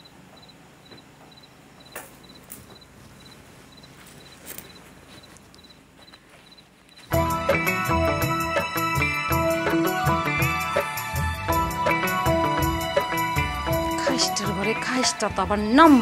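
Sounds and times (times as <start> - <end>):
crickets chirping: 0.0 - 7.2
faint clicks and rustles: 0.4 - 7.1
loud music: 7.1 - 15.1.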